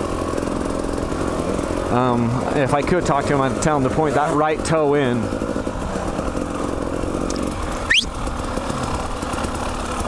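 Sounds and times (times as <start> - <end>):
dirt bike engine running: 0.0 - 10.0
sharp rising squeak: 7.9 - 8.2.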